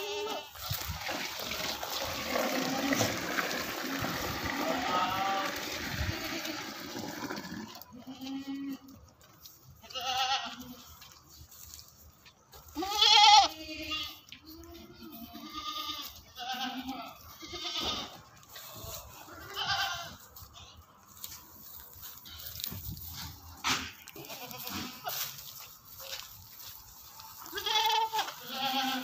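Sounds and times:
goats bleating: 0.0s - 0.7s, 2.2s - 9.0s, 9.8s - 11.1s, 12.7s - 20.3s, 24.0s - 25.4s, 27.4s - 29.0s.

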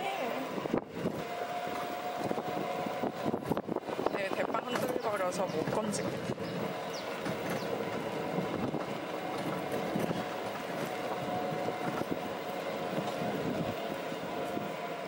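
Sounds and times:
buggy running road noise: 0.0s - 15.0s
faint rattles: 1.0s - 13.9s.

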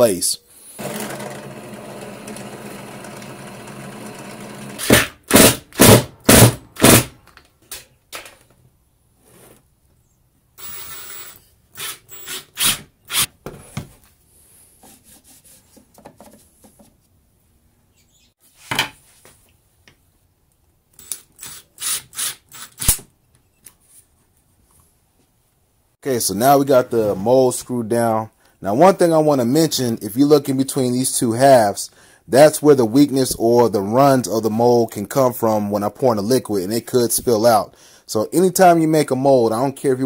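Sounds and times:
drill press motor humming: 0.8s - 4.9s.

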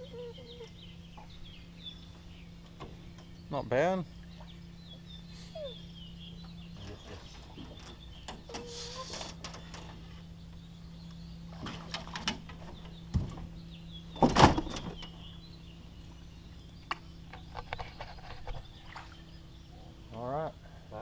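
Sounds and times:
steady low hum: 0.0s - 21.0s
knocks and clatter in metal boat: 11.5s - 15.2s
loud thump: 14.2s - 15.0s.

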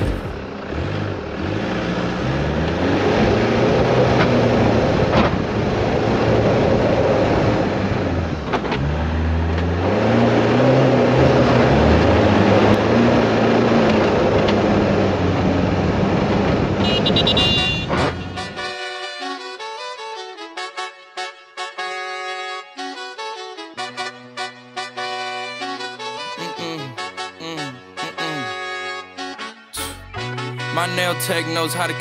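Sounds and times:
horn-like notes: 16.8s - 32.0s
music with slow bass line: 23.8s - 32.0s.

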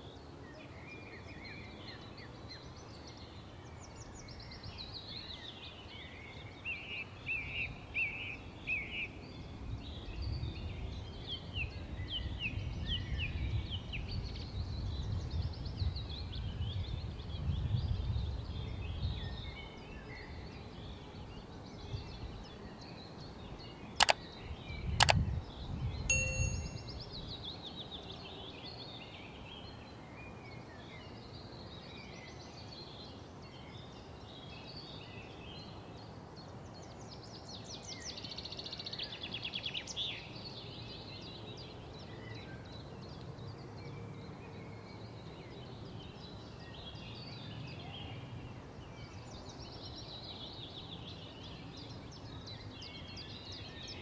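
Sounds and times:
sharp clicks: 24.0s - 24.2s, 25.0s - 25.2s, 26.1s - 26.9s
short ding: 26.1s - 27.0s.

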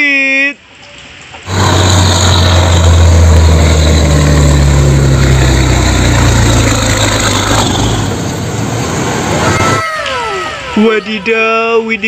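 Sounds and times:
road noise: 0.5s - 12.0s
diesel truck engine running: 1.5s - 9.4s.

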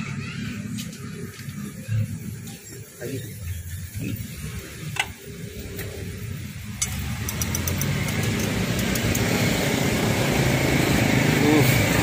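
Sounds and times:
vehicle passing on road: 3.9s - 12.0s.

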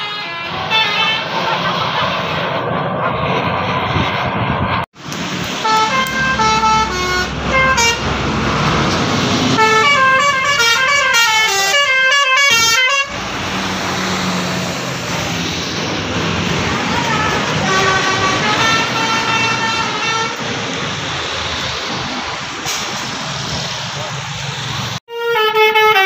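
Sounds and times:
multi-tone musical air horn: 0.0s - 1.3s, 5.6s - 8.1s, 9.5s - 13.2s, 16.8s - 20.4s, 25.1s - 26.0s
road traffic: 0.0s - 26.0s.

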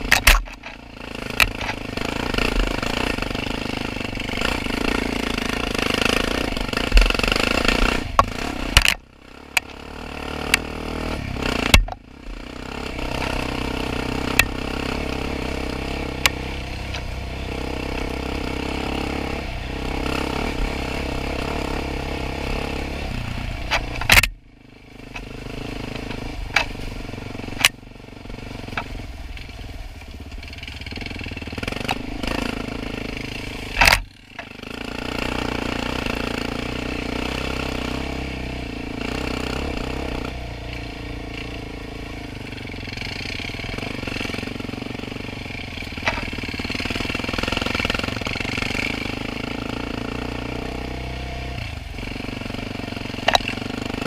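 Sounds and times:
atv engine running: 0.0s - 54.0s
sharp knocks and clatter: 0.1s - 3.2s, 23.7s - 24.4s, 46.0s - 48.9s, 53.1s - 53.8s.

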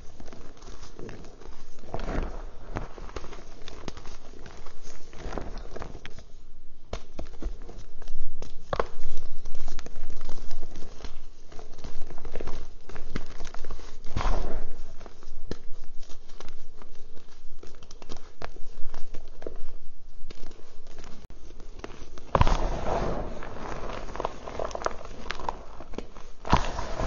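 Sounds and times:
hands crushing dry chalk: 0.0s - 27.0s.

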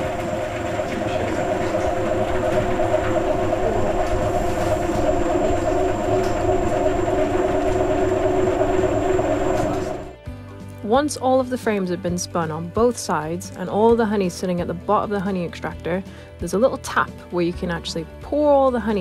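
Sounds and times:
honey extractor motor hum: 0.0s - 10.2s.

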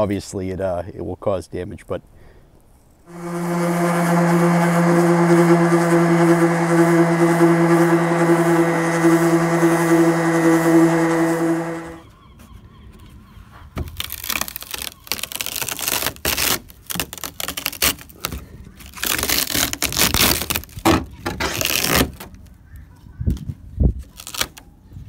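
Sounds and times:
brittle resin crackling and scraping: 13.8s - 22.3s.

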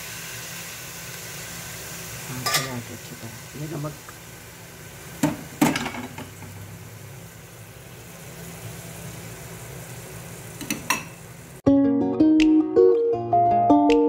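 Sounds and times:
greens sizzling in hot oil: 0.0s - 11.6s
ukulele music: 11.6s - 14.0s.

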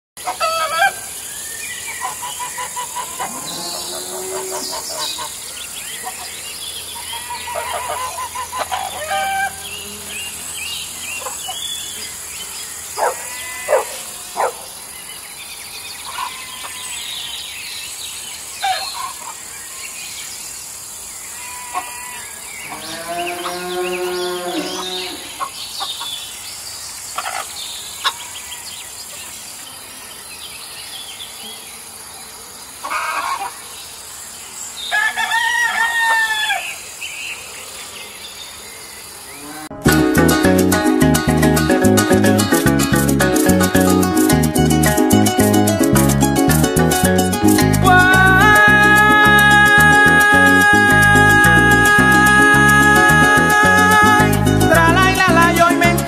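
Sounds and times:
farm animals calling: 0.2s - 1.2s, 1.9s - 14.7s, 16.1s - 17.0s, 18.6s - 19.4s, 21.3s - 26.1s, 27.2s - 28.4s, 32.8s - 33.7s
insect drone: 0.2s - 15.6s.

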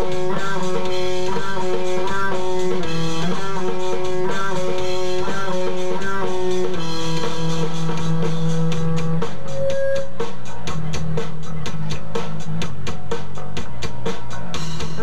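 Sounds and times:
electric guitar chords: 0.0s - 10.3s.

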